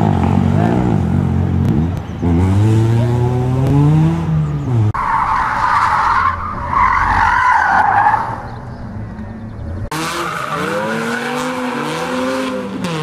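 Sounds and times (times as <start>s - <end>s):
car engine revving hard: 9.9s - 13.0s.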